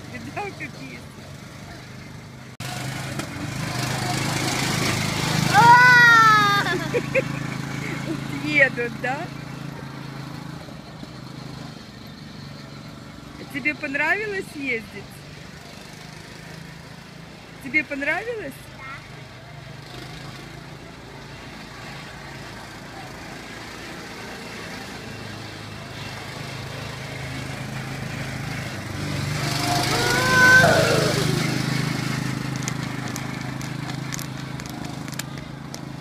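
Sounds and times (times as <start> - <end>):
ride-on toy car motor hum: 29.3 - 35.8.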